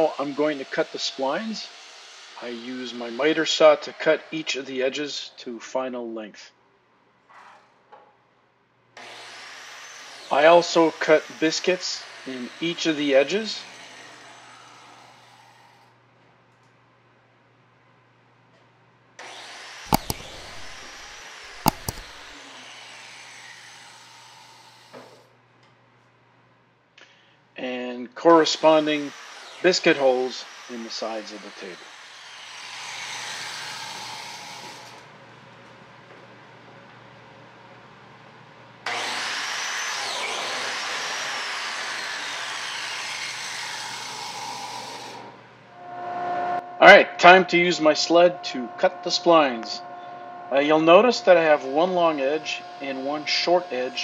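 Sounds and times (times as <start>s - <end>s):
plate joiner motor whine: 0.0s - 4.5s, 9.0s - 15.8s, 19.2s - 25.2s, 28.3s - 35.1s, 38.9s - 46.8s, 48.2s - 54.0s
sharp knocks of cutting: 19.9s - 22.2s.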